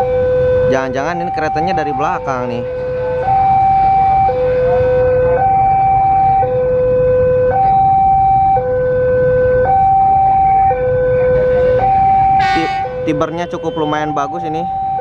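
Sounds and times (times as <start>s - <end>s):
two-tone crossing alarm: 0.0s - 15.0s.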